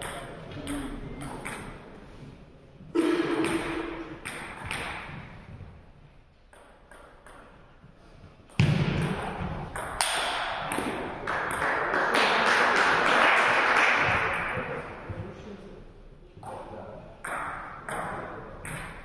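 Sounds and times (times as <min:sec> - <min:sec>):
crowd clapping: 0:11.2 - 0:14.9.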